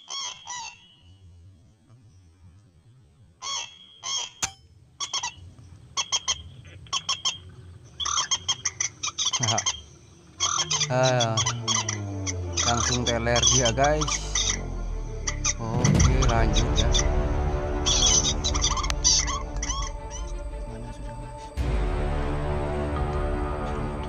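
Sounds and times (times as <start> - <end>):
moorhen warbling call: 0.0 - 1.1, 3.4 - 21.5
moorhens honking calls: 0.0 - 1.1, 3.4 - 24.0.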